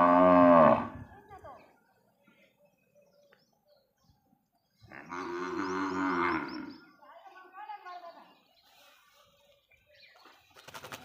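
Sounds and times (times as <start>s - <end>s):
cattle mooing: 0.0s - 1.0s, 4.9s - 6.8s.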